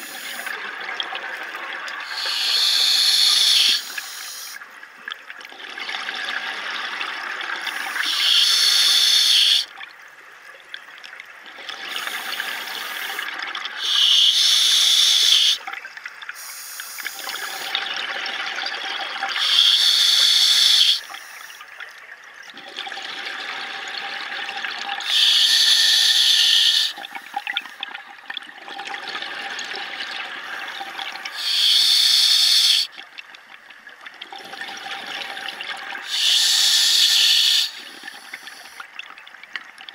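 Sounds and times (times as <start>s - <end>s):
underwater gurgling: 0.0s - 39.9s
diver breathing through regulator: 2.1s - 4.6s, 7.7s - 9.6s, 19.4s - 21.4s, 25.0s - 27.4s, 31.3s - 32.9s, 36.0s - 38.8s.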